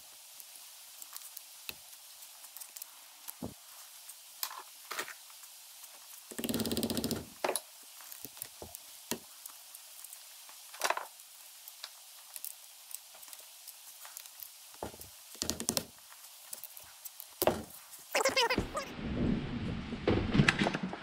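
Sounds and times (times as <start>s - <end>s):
screwdriver metal clicks and taps: 15.3s - 15.9s.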